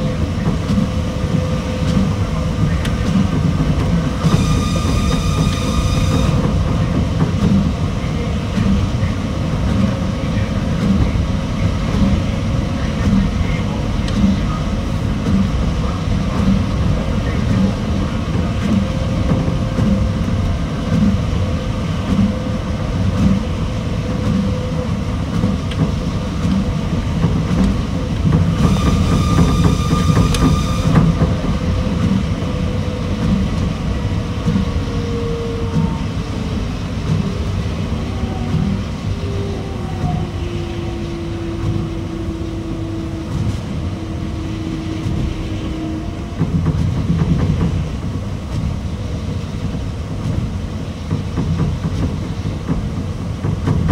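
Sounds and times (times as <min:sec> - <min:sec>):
monorail low rumble with thumps: 0:00.0 - 0:53.9
brief high whine: 0:04.2 - 0:06.4, 0:28.6 - 0:31.2.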